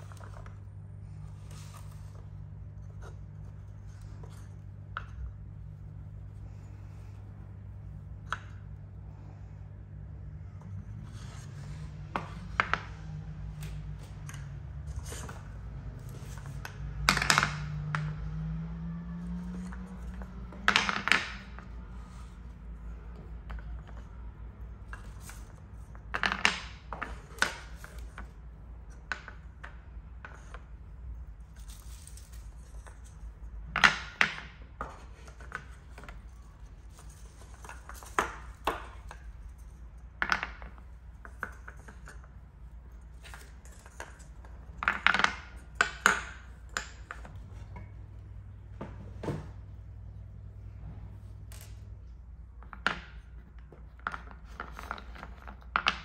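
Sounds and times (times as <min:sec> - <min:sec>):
wooden balls dropping into bowl: 0:11.2 - 0:30.8, 0:31.6 - 0:49.6, 0:51.5 - 0:56.0
wooden pieces clicking on stone: 0:13.6 - 0:18.2, 0:19.3 - 0:21.9, 0:24.8 - 0:28.2, 0:43.2 - 0:47.3.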